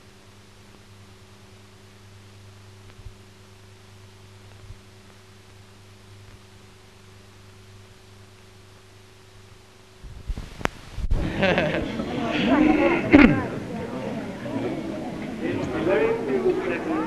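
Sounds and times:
film soundtrack hum and hiss: 0.0s - 17.0s
faint clicks: 2.8s - 3.2s.

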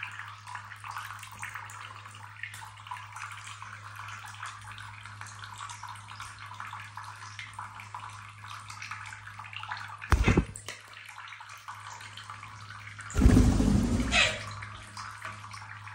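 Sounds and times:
tap water splashing into sink: 5.2s - 15.9s
loud thump: 10.1s - 10.6s, 13.2s - 14.5s.

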